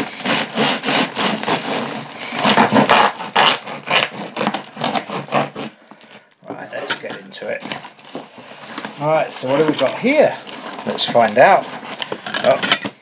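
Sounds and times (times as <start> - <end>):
blade cutting cardboard: 0.0 - 5.8.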